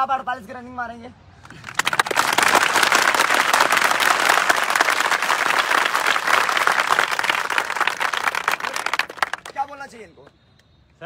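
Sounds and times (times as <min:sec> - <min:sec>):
crowd applauding: 0:01.4 - 0:10.0.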